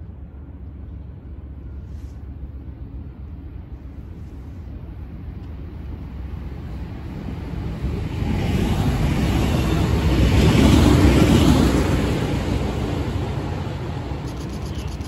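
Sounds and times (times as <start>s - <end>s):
electric train passing: 4.7s - 15.0s.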